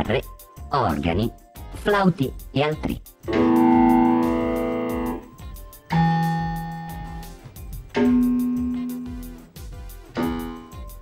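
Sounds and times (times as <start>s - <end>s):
sustained synthesized notes: 3.3s - 5.3s.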